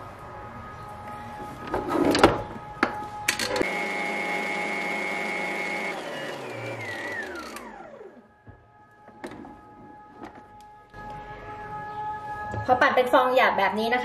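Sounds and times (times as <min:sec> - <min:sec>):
stand mixer motor whirring: 0:03.6 - 0:08.2.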